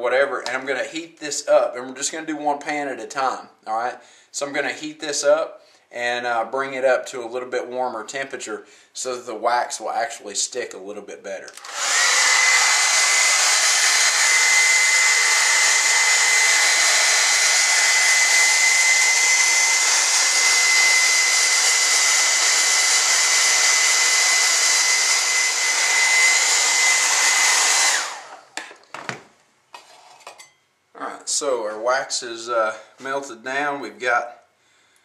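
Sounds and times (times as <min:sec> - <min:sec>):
hair dryer running: 0:11.6 - 0:28.6.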